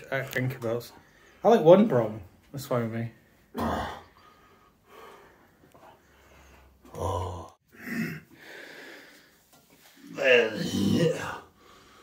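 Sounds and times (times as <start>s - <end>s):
man breathing hard: 4.0s - 6.9s, 7.7s - 9.5s, 11.4s - 12.0s.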